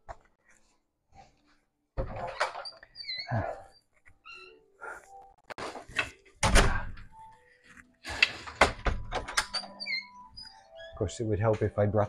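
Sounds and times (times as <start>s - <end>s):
wooden door shutting: 6.4s - 7.1s, 8.2s - 9.8s.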